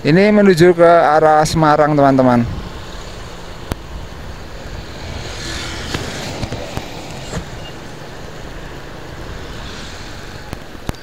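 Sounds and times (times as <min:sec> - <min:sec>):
wind rush: 0:01.1 - 0:11.0
vehicle passing by: 0:01.7 - 0:11.0
motorcycle engine: 0:02.3 - 0:11.0.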